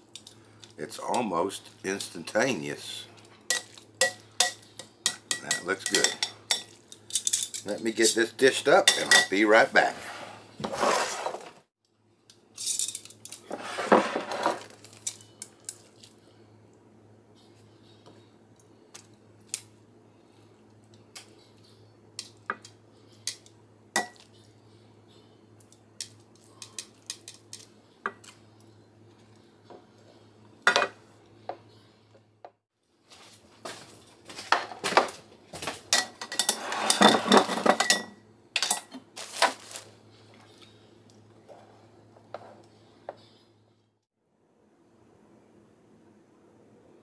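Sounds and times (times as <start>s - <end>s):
dishes and utensils clattering: 3.5s - 7.7s, 8.8s - 9.5s, 35.9s - 39.6s
tongs clinking on glass and ceramic: 3.5s - 7.9s, 8.8s - 9.4s.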